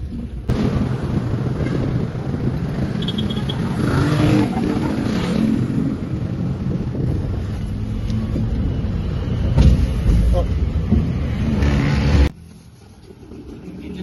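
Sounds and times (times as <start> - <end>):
traffic engines rumbling: 0.0 - 14.0
vehicle passing by: 1.7 - 10.0, 10.9 - 12.3.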